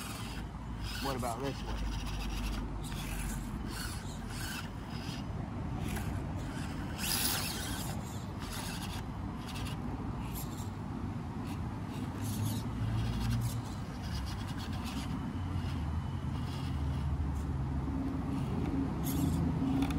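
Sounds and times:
tyres scraping on stone: 0.0s - 5.2s, 5.8s - 10.8s
small motor and gears whining: 0.0s - 19.9s.

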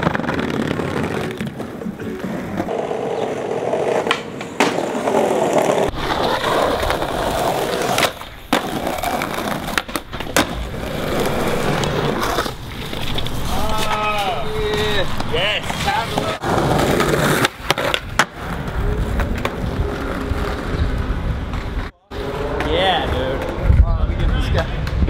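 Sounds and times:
skateboard wheels rolling on stone: 0.0s - 25.0s
skateboard clacks: 3.7s - 14.0s.

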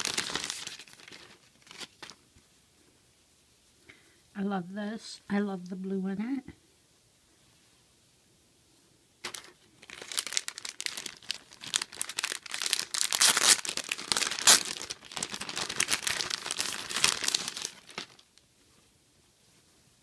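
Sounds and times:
plastic bag crinkling: 0.0s - 2.2s, 9.2s - 18.4s.

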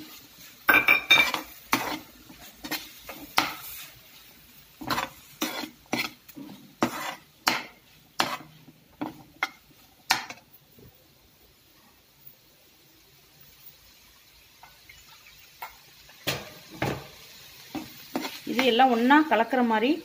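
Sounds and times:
metal spoon scraping a metal pan: 0.7s - 3.8s, 4.8s - 9.6s, 17.8s - 18.8s.

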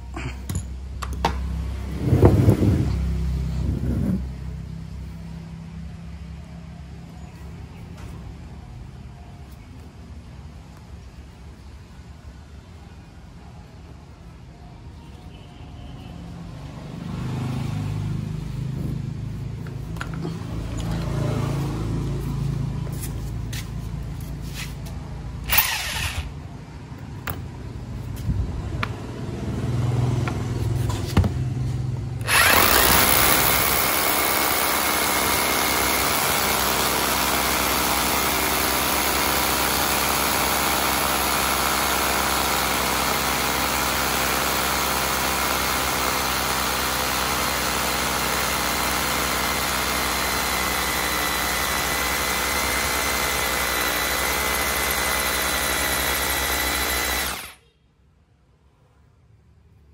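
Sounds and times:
motor hum: 25.4s - 26.4s, 32.1s - 57.6s
rotary hammers drilling concrete: 25.4s - 26.4s, 32.2s - 57.6s.

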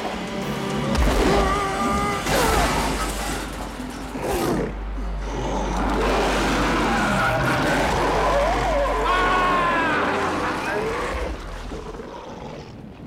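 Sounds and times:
film score music: 0.0s - 13.0s
monster snarling and roaring: 4.2s - 12.8s.

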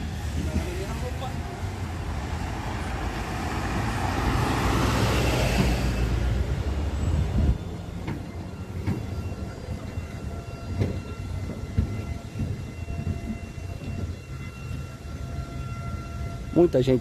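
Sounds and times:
low rumble of traffic: 0.0s - 17.0s
vehicle passing: 3.0s - 7.0s.

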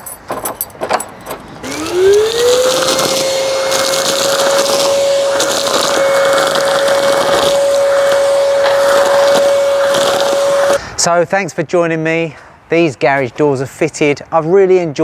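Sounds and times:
keys rattling in door lock: 0.0s - 1.4s
vacuum cleaner motor whine: 1.6s - 10.8s.

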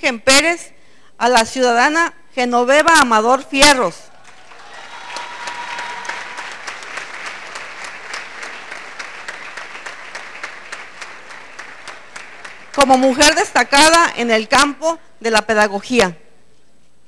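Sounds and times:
audience applauding: 4.1s - 13.9s.

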